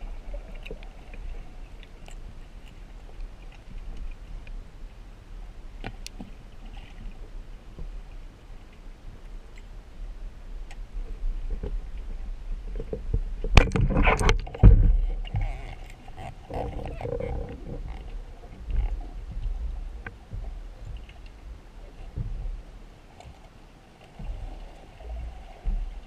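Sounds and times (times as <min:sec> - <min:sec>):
low wash of sea: 0:00.0 - 0:26.0
soft knocking and rumbling: 0:05.8 - 0:08.3, 0:10.6 - 0:23.4, 0:24.1 - 0:26.0.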